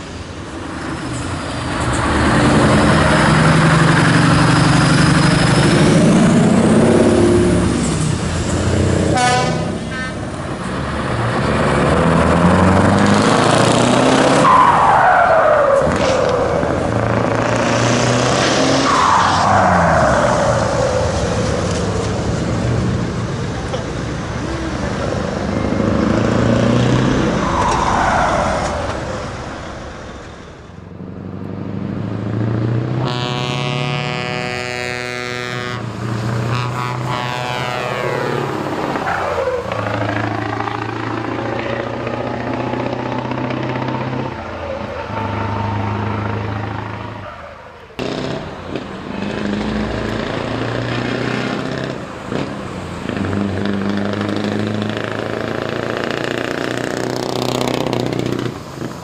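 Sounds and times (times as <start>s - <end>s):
trucks with loud exhaust driving past: 0.0s - 59.0s
truck horn: 9.0s - 10.3s, 32.9s - 38.6s, 43.6s - 47.5s.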